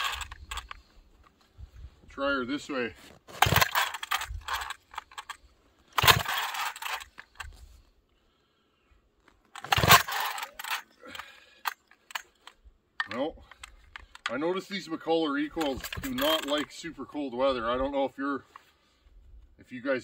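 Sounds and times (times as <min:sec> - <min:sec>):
chainsaw engine turning over: 0:00.0 - 0:00.9, 0:03.1 - 0:07.6, 0:09.5 - 0:12.5, 0:15.5 - 0:16.6
recoil starter rope rasping: 0:00.0 - 0:01.4, 0:03.0 - 0:07.8, 0:09.4 - 0:12.5.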